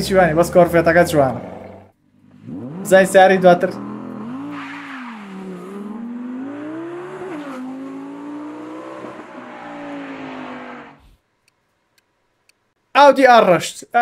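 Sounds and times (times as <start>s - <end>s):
sports car engine revving: 0.0s - 11.1s.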